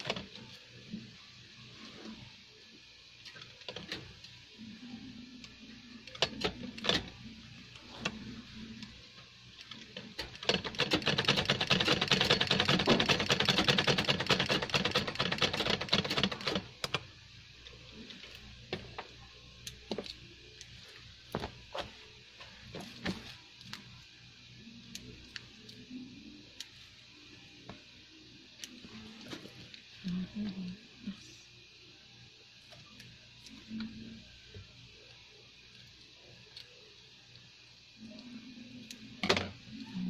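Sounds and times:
sewing machine stitching: 10.2s - 16.7s.

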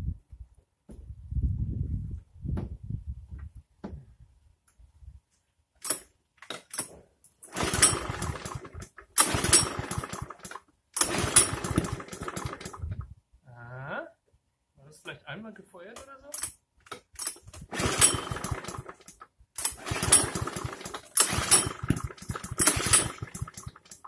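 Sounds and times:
lawn mower recoil starter pulls: 5.8s - 13.0s, 16.4s - 24.0s
engine turning over with rasping chug: 6.8s - 13.0s, 17.2s - 24.0s.

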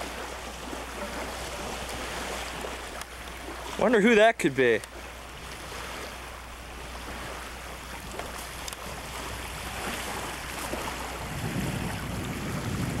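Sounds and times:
constant low hum: 0.0s - 13.0s
wind rumble on microphone: 6.9s - 13.0s.

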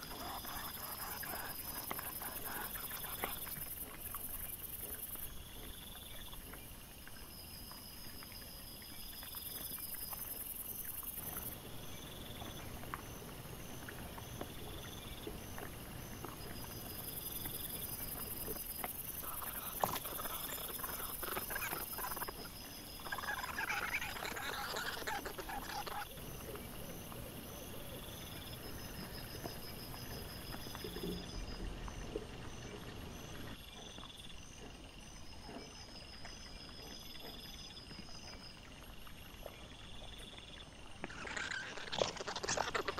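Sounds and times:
wild boar noises: 0.0s - 4.2s, 11.2s - 34.8s.

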